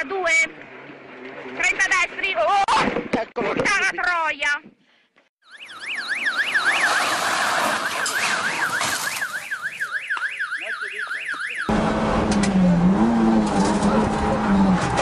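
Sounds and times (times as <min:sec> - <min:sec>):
electronic siren wailing: 0:05.4 - 0:13.2.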